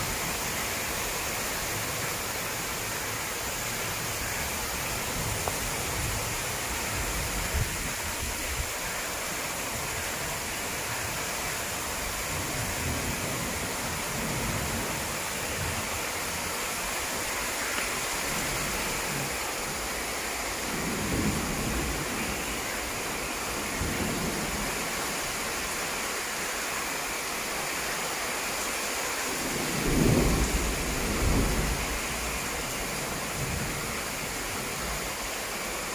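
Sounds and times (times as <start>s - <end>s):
heavy rain falling: 0.0s - 35.9s
low rolling thunder: 20.5s - 22.7s, 29.5s - 34.0s.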